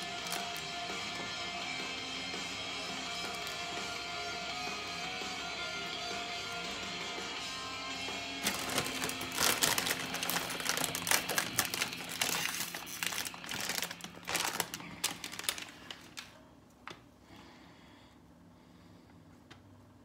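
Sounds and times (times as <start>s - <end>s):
thin plastic crinkling: 0.0s - 1.2s, 3.2s - 3.9s, 8.4s - 16.4s.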